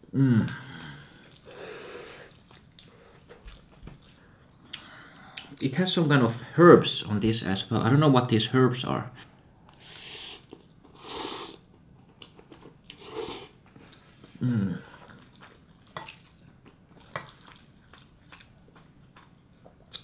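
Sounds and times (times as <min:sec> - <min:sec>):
man humming mm: 0:00.0 - 0:01.0, 0:14.4 - 0:14.9
man slurping and chewing noodles: 0:00.4 - 0:04.2, 0:09.7 - 0:20.0.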